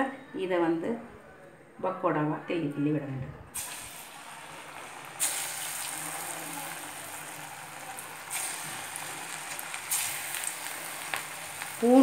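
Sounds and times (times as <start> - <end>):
deep-frying sizzle: 3.6 - 12.0.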